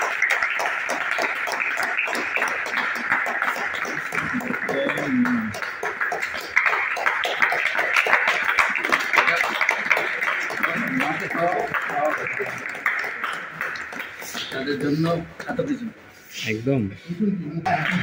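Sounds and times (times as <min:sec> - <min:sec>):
people clapping: 0:00.0 - 0:15.7, 0:17.6 - 0:18.0
voices: 0:04.1 - 0:05.6.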